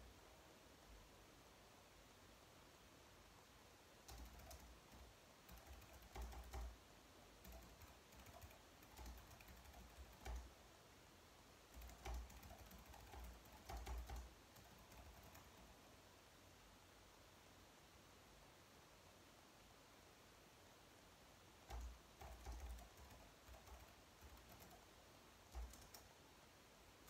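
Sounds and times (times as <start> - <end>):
soft typing on a keyboard: 4.0 - 6.8, 7.4 - 10.6, 11.7 - 15.9, 21.6 - 26.2.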